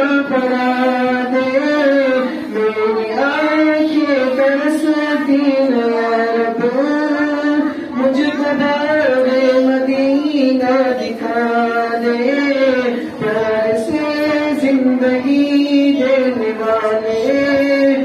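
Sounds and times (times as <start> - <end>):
man singing unaccompanied: 0.0 - 18.0.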